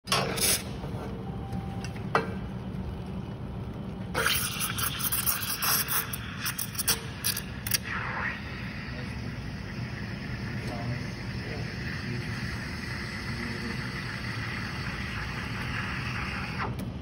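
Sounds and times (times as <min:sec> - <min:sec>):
low machine hum: 0:00.1 - 0:17.0
sharp hissing spurts: 0:04.2 - 0:16.6.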